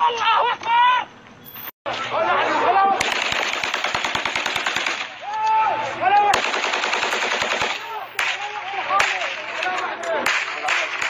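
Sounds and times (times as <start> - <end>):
automatic weapon fire bursts: 3.0 - 5.1, 6.3 - 7.8.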